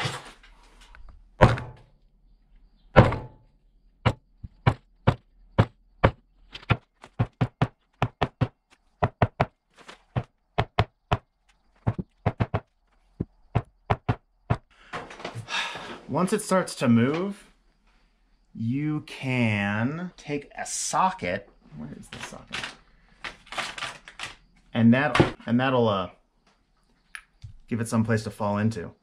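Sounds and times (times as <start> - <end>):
metal part knocking on wood: 11.9 - 12.6.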